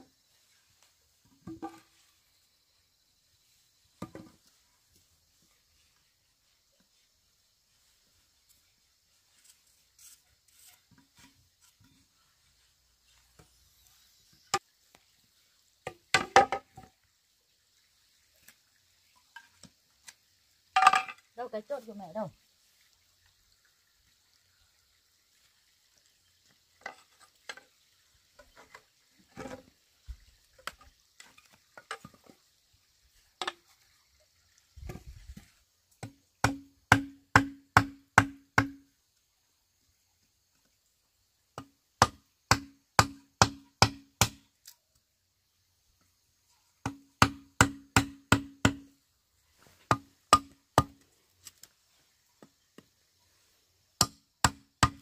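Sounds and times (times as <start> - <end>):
light knocks and scrapes on bamboo: 0.0 - 2.5, 3.4 - 15.1, 26.4 - 32.5, 33.1 - 34.0, 34.8 - 38.8, 48.6 - 55.0
hammer striking peg into bamboo: 36.0 - 38.9, 41.6 - 44.5, 46.8 - 48.9, 49.9 - 51.0, 54.0 - 55.0.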